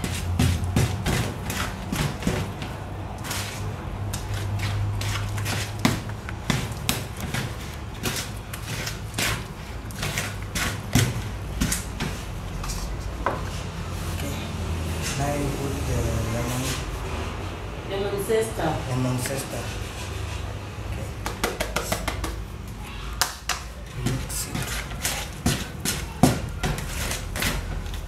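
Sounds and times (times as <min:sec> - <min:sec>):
wooden spoon beating batter in bowl: 0:00.0 - 0:13.6, 0:21.1 - 0:22.5, 0:23.2 - 0:28.0.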